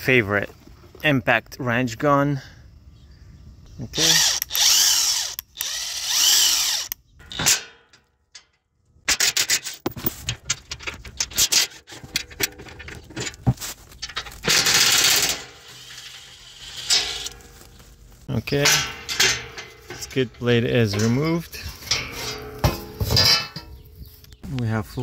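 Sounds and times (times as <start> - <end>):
impact wrench running: 4.0 - 7.0, 14.5 - 17.4
clicks and rattles: 7.2 - 16.2.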